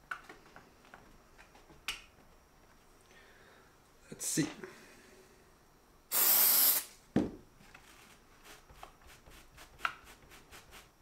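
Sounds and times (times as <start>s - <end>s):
aerosol spray: 6.1s - 7.0s
faint handling and rubbing: 7.6s - 11.0s.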